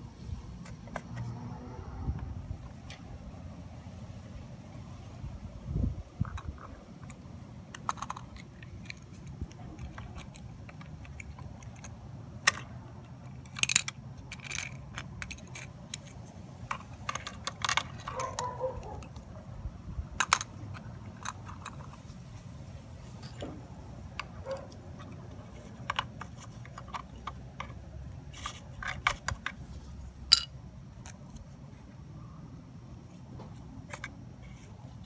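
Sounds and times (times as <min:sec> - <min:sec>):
low steady rumble: 0:00.0 - 0:35.0
plastic and metal toy parts clicking: 0:06.2 - 0:19.3, 0:20.2 - 0:22.0, 0:24.1 - 0:31.4, 0:33.8 - 0:34.7.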